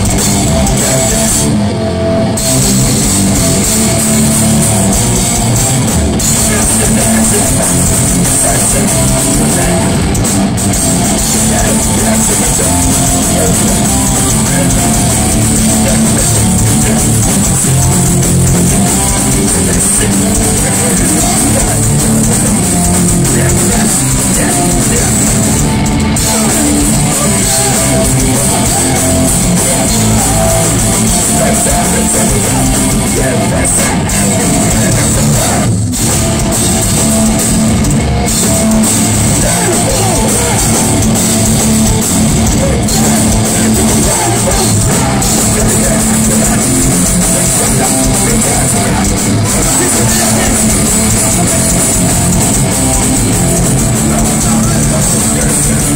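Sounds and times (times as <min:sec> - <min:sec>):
bass guitar: 0:00.0 - 0:55.9
distorted electric guitars: 0:00.0 - 0:55.9
drum kit: 0:00.0 - 0:55.9
person singing into microphone: 0:06.2 - 0:10.3, 0:11.1 - 0:35.8, 0:38.3 - 0:55.9.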